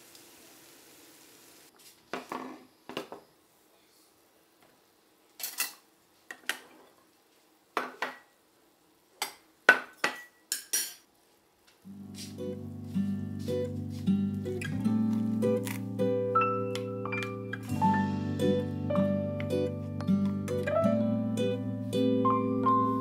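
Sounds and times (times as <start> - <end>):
faint frying sizzle: 0.0 - 1.9
plates and cutlery clinking: 9.2 - 11.1.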